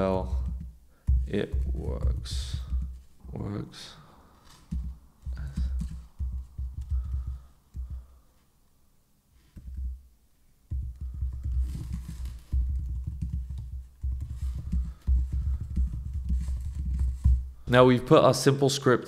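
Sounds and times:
computer keyboard typing: 0.2s - 0.7s, 1.3s - 3.0s, 4.7s - 8.0s, 10.7s - 17.3s.

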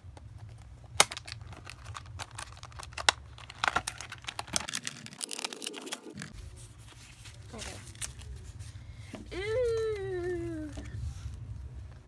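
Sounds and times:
plastic packaging crinkling: 0.3s - 8.6s.

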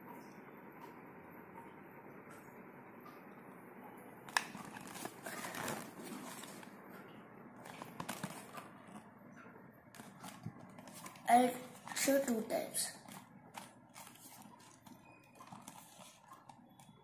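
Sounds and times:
cardboard box rustling and scraping: 4.7s - 6.6s.

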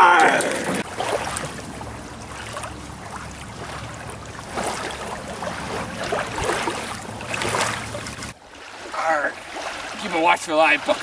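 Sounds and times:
water washing on shore: 0.0s - 11.0s.

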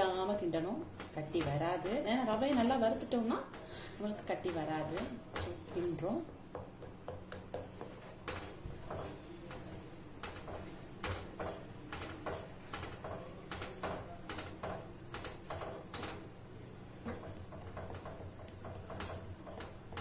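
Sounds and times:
wooden spatula knocking on pan: 10.3s - 16.2s, 17.1s - 20.0s.

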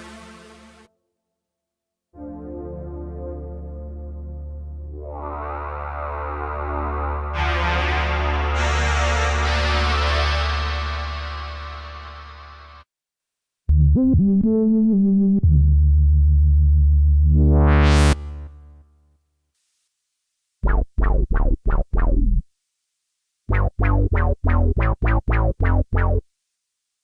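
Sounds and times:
held low synthesizer notes: 2.2s - 12.2s, 13.7s - 18.6s
clipped synth bass notes: 13.7s - 18.6s, 20.6s - 22.4s, 23.5s - 26.2s
rising filter sweep: 17.2s - 18.5s.

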